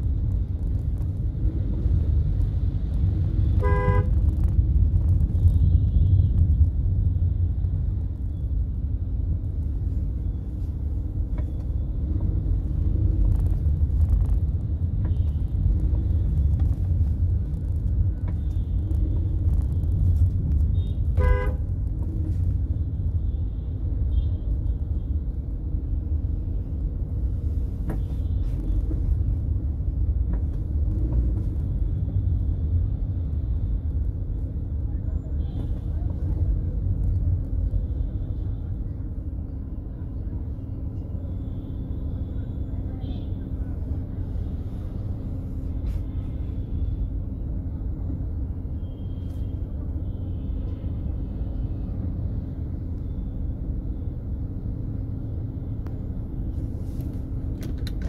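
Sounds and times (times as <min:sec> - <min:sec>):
road and engine rumble: 0:00.0 - 0:58.0
car horn toot: 0:03.6 - 0:04.1, 0:21.2 - 0:21.6.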